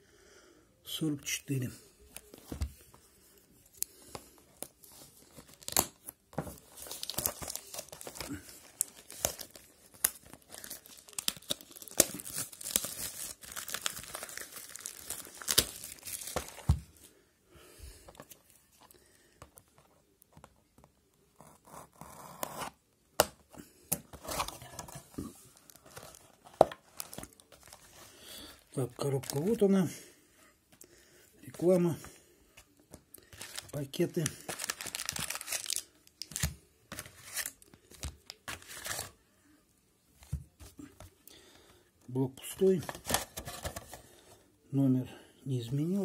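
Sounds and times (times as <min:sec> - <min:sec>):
plastic wrap crackling: 0:06.6 - 0:16.8, 0:33.3 - 0:36.5.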